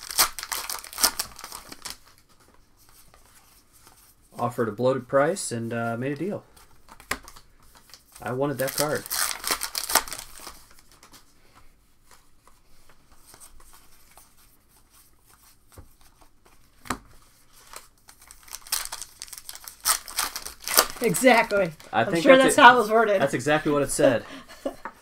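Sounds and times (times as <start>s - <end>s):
wrappers crinkling and tearing: 0.0s - 2.3s, 6.9s - 11.3s, 17.3s - 22.4s
cards rustling: 0.0s - 4.1s, 6.5s - 11.3s, 12.0s - 24.2s.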